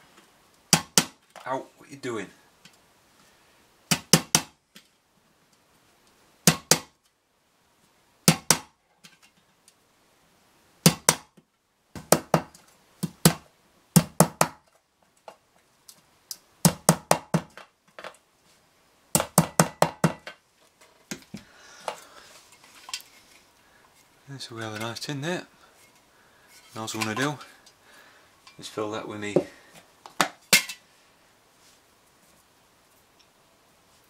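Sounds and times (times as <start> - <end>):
faint handling of a tin: 20.6 - 27.8.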